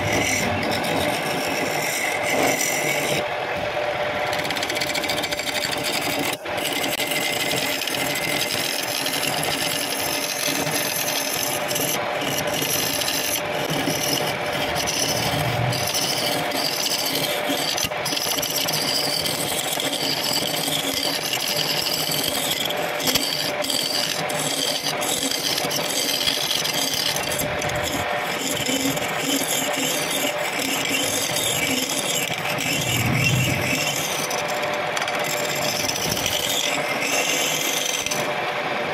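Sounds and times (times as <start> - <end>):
chisel scraping wood: 0.0 - 3.2, 4.4 - 38.3
lathe motor hum: 0.0 - 6.7, 7.4 - 18.9, 31.1 - 38.9.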